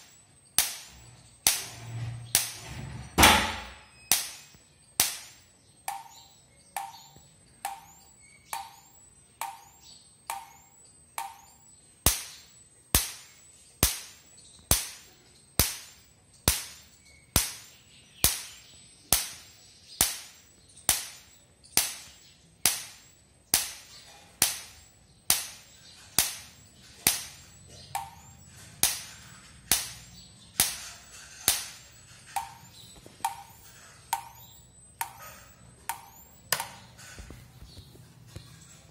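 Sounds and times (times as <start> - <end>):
electric fence energizer cracking: 0.6 - 6.0.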